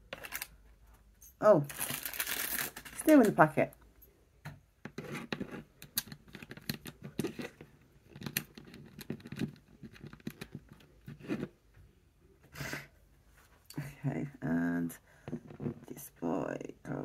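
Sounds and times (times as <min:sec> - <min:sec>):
plastic bricks clicking: 0:05.3 - 0:10.8.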